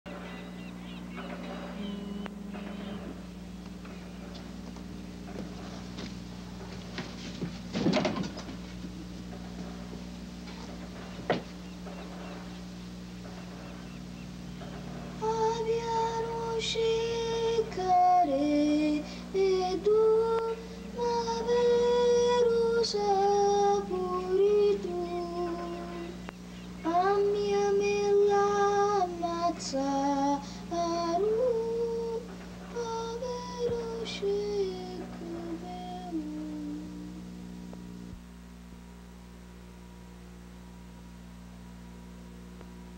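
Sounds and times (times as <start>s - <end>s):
steady low hum: 0.1s - 42.9s
boy singing slow melody: 1.5s - 3.3s, 15.2s - 37.6s.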